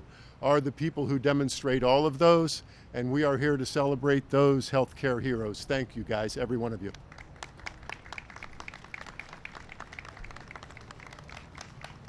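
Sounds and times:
light applause: 6.8s - 12.0s.

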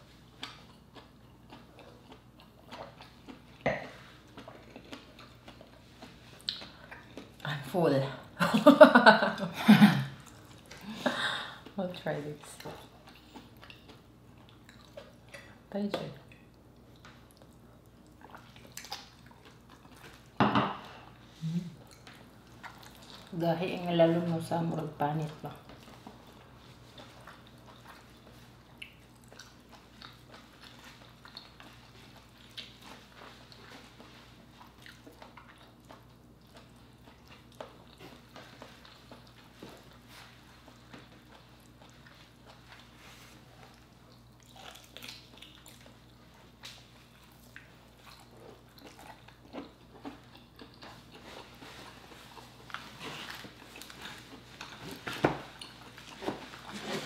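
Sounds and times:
mouth smacks while chewing: 0.4s - 7.4s, 26.8s - 56.4s.

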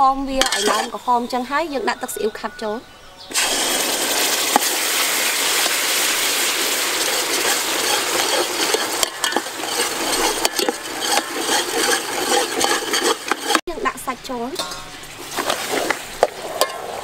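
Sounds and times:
metal ladle scraping a pot: 0.2s - 2.1s, 3.3s - 13.6s, 14.6s - 17.0s
sauce sizzling in a pot: 3.3s - 13.6s.

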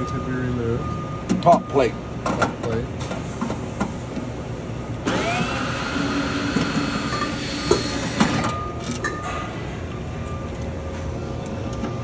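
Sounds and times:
cordless drill running: 5.1s - 8.2s.

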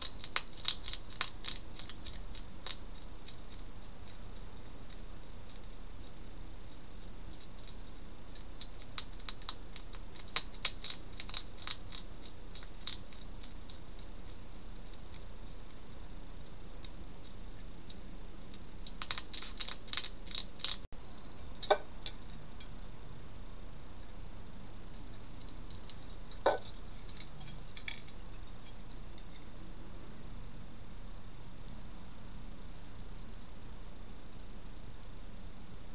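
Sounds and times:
hedgehog crunching food: 0.0s - 20.9s, 24.6s - 29.5s.

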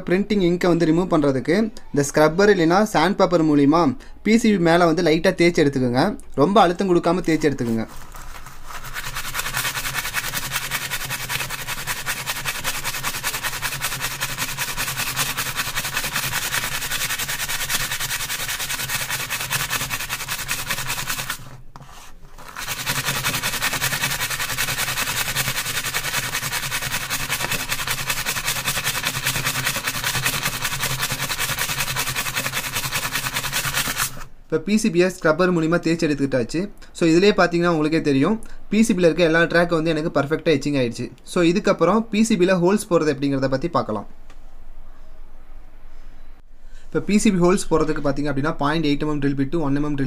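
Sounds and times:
steel wool scrubbing metal: 7.8s - 34.3s.

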